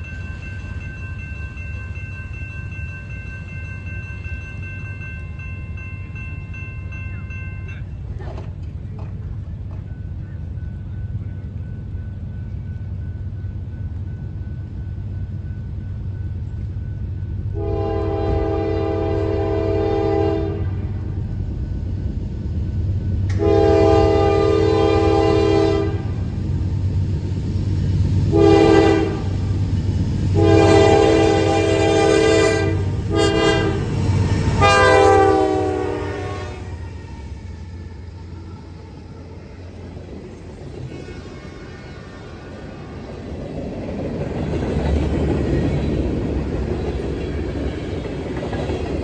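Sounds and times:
train rumbling: 0.0s - 49.0s
locomotive air horn blasts: 17.5s - 20.8s, 23.3s - 26.2s, 28.3s - 29.4s, 30.4s - 33.9s, 34.6s - 36.7s.

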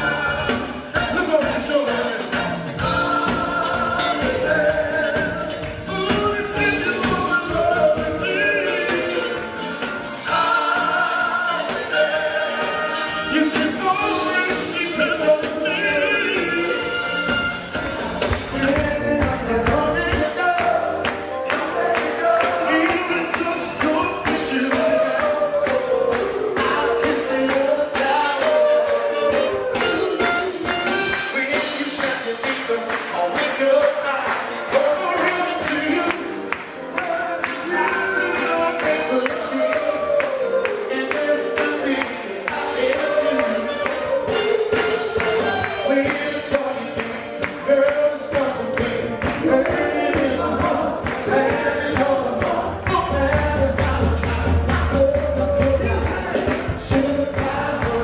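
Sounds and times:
backing music with steady beat: 0.0s - 58.0s
drums: 0.0s - 58.0s
guitar: 0.0s - 58.0s
horns: 0.0s - 58.0s
vocal group singing: 0.0s - 58.0s.

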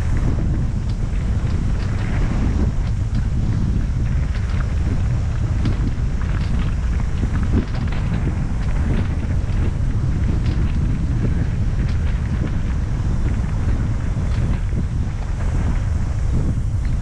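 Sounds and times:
bike tyres crunching and rattling: 0.0s - 17.0s
wind buffeting microphone: 0.0s - 17.0s.

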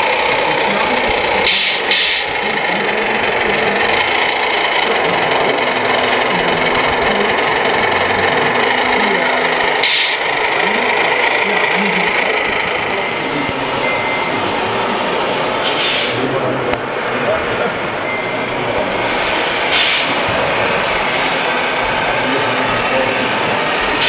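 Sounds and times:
electric motor whining: 0.0s - 24.0s
mechanical hiss: 9.8s - 10.3s, 18.9s - 21.8s.

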